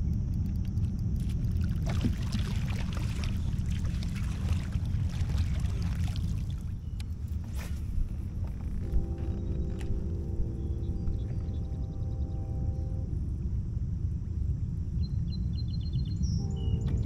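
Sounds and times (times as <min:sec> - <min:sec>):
steady low rumble: 0:00.0 - 0:17.0
water splashing around kayak: 0:00.8 - 0:09.2.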